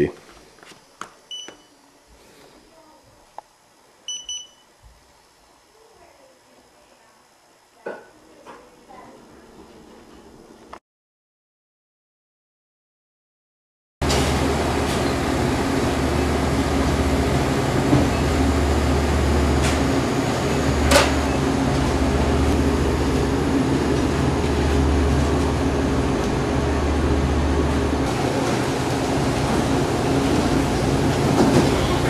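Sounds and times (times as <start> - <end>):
machinery hum and rushing: 14.0 - 32.0.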